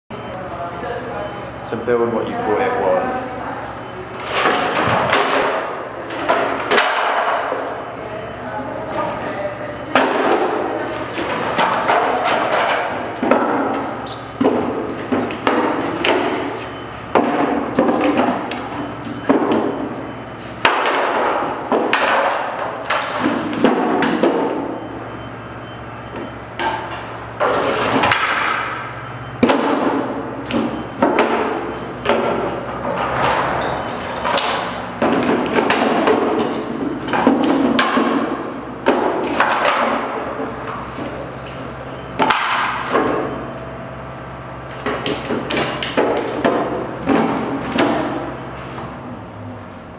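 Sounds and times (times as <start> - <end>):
wooden panels knocking and clattering: 20.6 - 24.6, 29.4 - 41.1.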